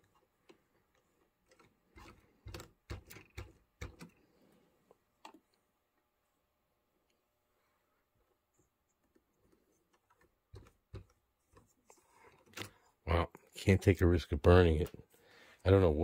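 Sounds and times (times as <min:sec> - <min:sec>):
small clicks and knocks: 0:00.0 - 0:04.3, 0:04.9 - 0:05.6, 0:08.9 - 0:12.8.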